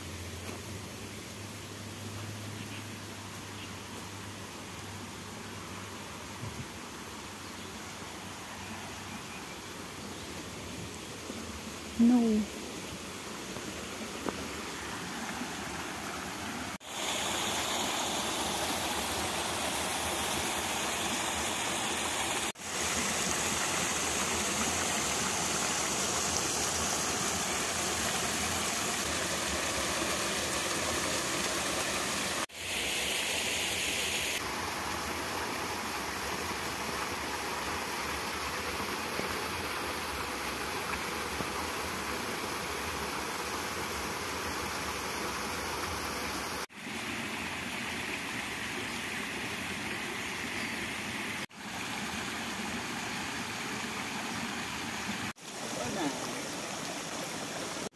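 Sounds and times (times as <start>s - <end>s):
mountain stream rushing: 12.9s - 57.9s.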